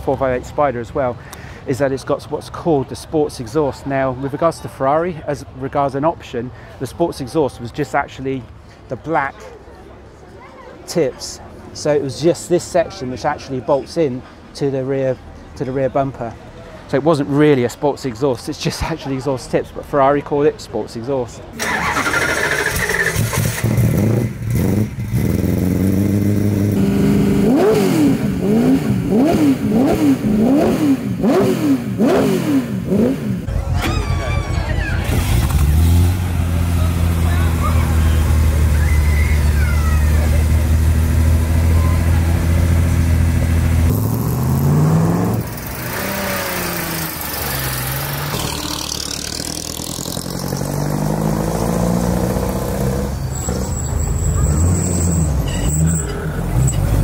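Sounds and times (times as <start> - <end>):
car engine idling and revving: 21.6 - 33.8, 34.8 - 57.0.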